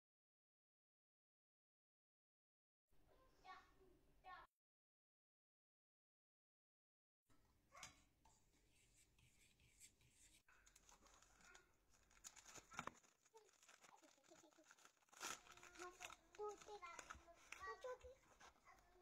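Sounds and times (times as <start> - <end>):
wrapper crinkling and tearing: 10.6 - 19.0.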